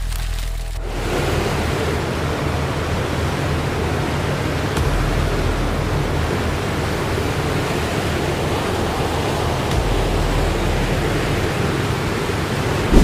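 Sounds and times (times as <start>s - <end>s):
steady rushing noise: 0.8s - 13.0s.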